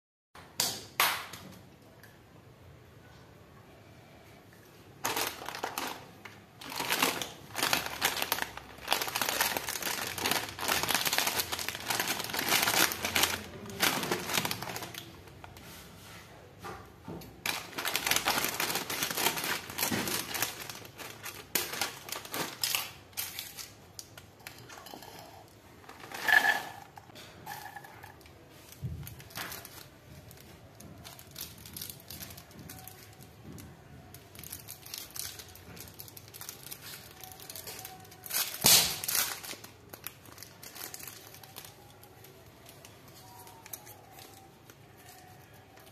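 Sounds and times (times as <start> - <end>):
plastic snack packets crinkling: 5.0 - 15.6, 17.3 - 25.0, 28.0 - 45.9
corn puffs poured into bowl: 24.5 - 28.3
scissors cutting packet: 36.2 - 39.6.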